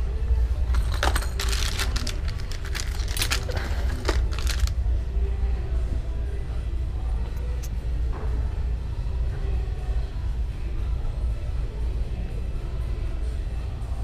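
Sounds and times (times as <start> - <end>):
plastic basket rattling: 0.7 - 4.8.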